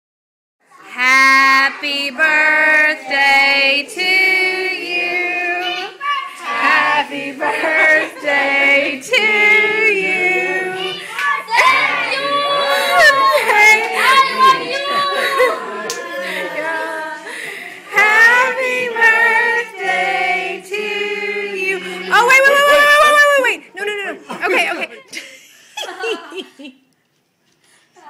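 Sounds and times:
other voices singing: 0.9s - 23.1s.

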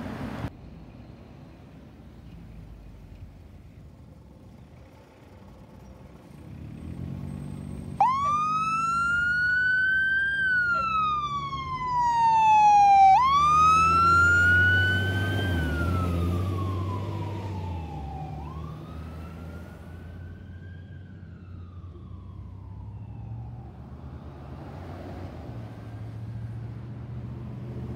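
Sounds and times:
diesel engine passing: 0.0s - 27.9s
fire engine siren wailing: 8.0s - 24.9s.

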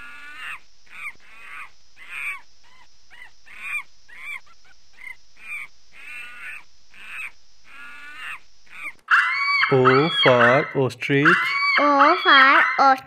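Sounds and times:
monkey shrill cries: 8.1s - 12.8s.

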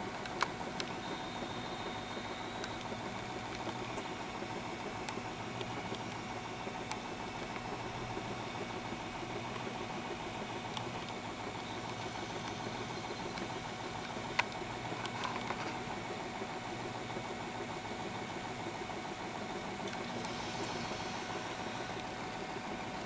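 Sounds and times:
motor hum and whir: 0.0s - 23.0s.

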